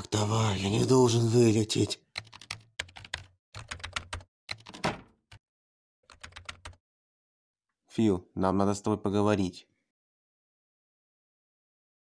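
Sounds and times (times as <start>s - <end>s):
computer keyboard typing: 2.1s - 5.4s, 6.1s - 6.8s.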